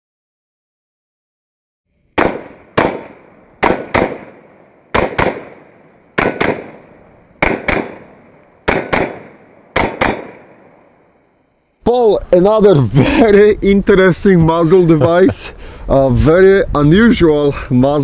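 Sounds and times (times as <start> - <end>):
rifle shots echoing: 2.2 - 11.0.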